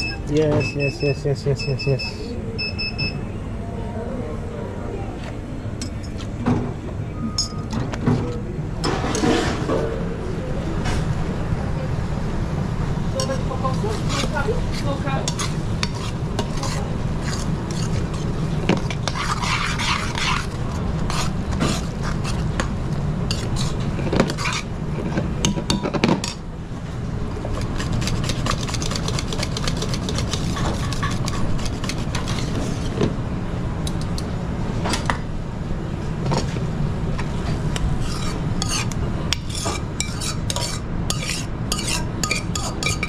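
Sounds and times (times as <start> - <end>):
steady low hum: 0.0 - 43.0
metal utensils clinking on pans: 40.0 - 43.0.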